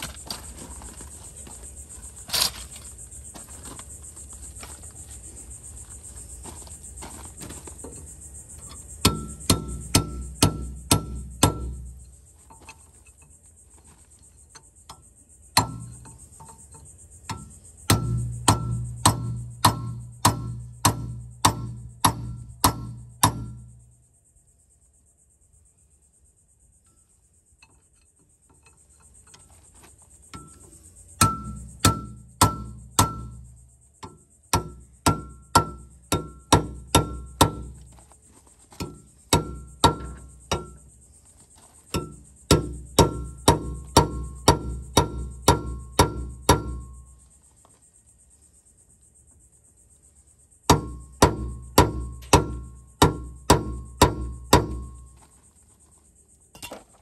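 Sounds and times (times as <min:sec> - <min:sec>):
hammer ringing on steel: 0:17.3 - 0:23.6, 0:31.2 - 0:33.4, 0:34.0 - 0:37.6.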